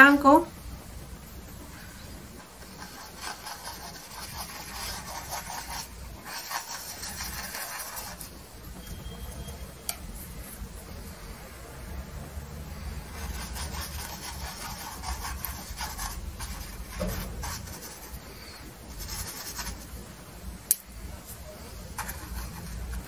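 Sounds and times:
paintbrush scrubbing canvas: 1.8s - 9.1s, 12.7s - 20.0s, 21.3s - 23.0s.

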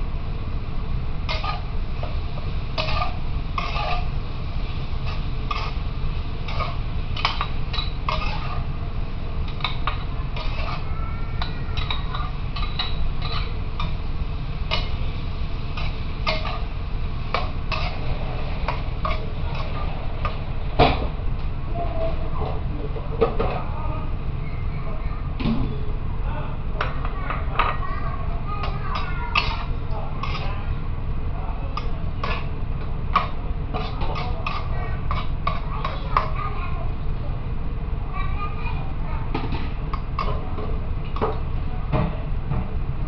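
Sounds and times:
steady low hum: 0.0s - 43.0s
food crackling and popping in pan: 0.9s - 18.0s.

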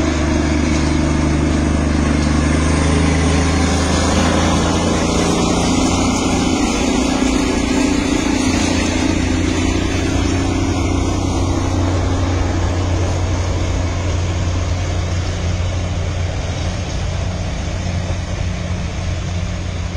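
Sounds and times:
low hum: 0.0s - 19.9s
vehicle engine running: 0.0s - 19.9s.

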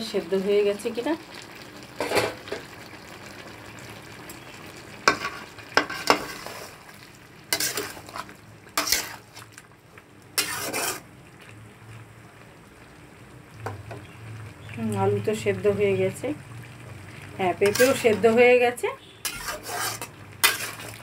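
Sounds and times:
faint sizzle of curry: 0.0s - 21.0s
spatula scraping through curry: 5.1s - 6.8s, 7.5s - 9.4s, 10.4s - 11.1s, 17.6s - 18.2s, 19.1s - 21.0s.

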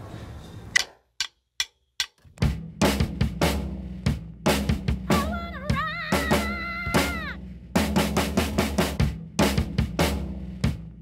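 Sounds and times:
drumstick count-in clicks: 0.7s - 2.5s
rock drum beat: 1.2s - 11.0s
woman singing: 5.1s - 7.4s.

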